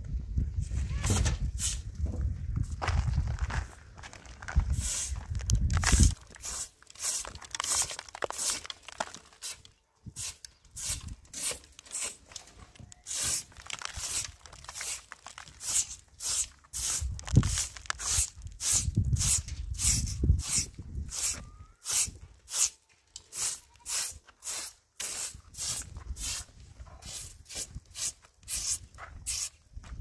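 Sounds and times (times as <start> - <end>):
broom scraping cement: 4.7 - 5.3, 5.9 - 9.6, 10.2 - 12.3, 13.1 - 29.6.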